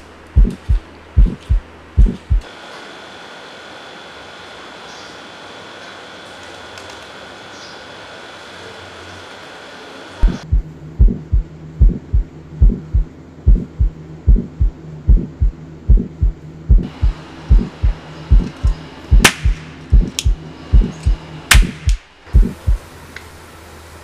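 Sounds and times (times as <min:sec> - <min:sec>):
heartbeat lub-dub: 0:00.4 - 0:02.5, 0:10.2 - 0:22.8
sharp cracks: 0:19.2 - 0:20.4, 0:21.5 - 0:22.1.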